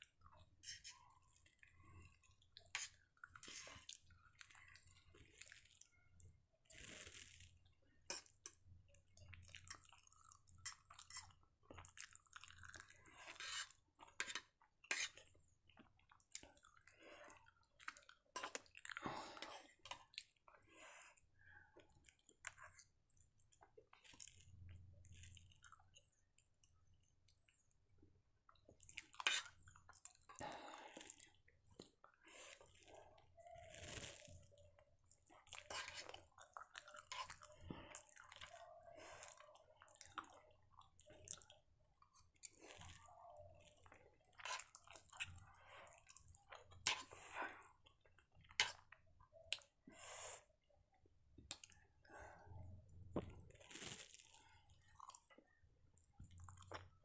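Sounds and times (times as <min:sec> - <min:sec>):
person chewing: 0:00.1 - 0:06.0, 0:06.8 - 0:26.7, 0:28.6 - 0:50.5, 0:51.4 - 0:51.8, 0:53.1 - 0:57.0.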